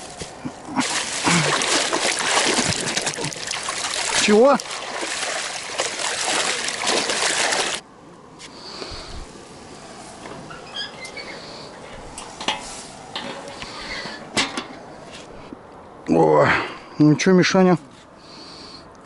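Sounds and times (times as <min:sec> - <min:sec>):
rushing river water: 0:00.7 - 0:07.8.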